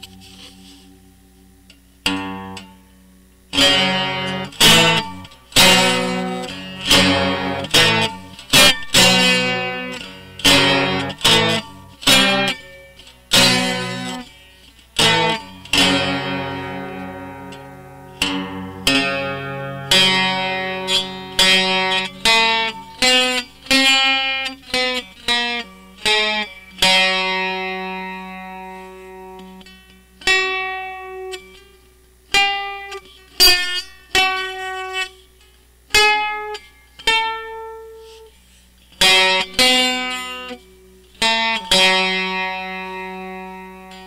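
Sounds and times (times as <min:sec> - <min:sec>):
plucked string instrument tune: 0:03.5 - 0:14.3, 0:15.0 - 0:29.6.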